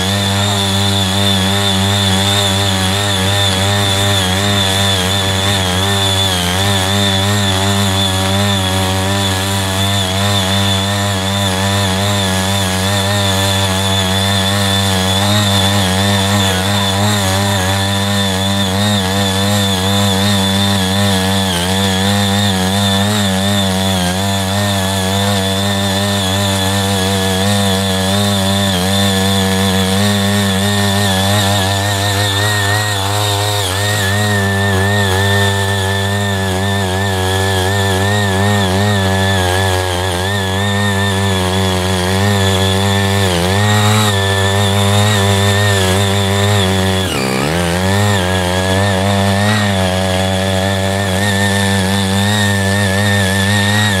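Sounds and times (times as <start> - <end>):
power tiller engine running: 0.0 - 54.0
tines churning soil: 0.0 - 54.0.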